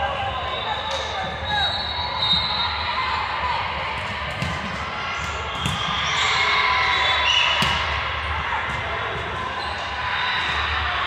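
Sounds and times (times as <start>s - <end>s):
players' voices and calls: 0.0s - 11.0s
referee's whistle: 0.2s - 2.9s.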